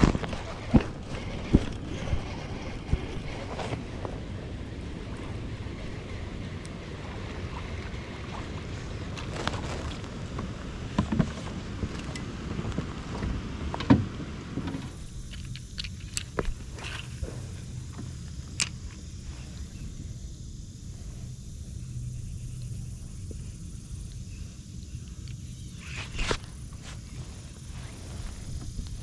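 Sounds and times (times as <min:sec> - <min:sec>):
wind buffeting microphone: 0:00.0 - 0:18.0
fishing reel clicks: 0:15.0 - 0:17.1, 0:18.5 - 0:19.0.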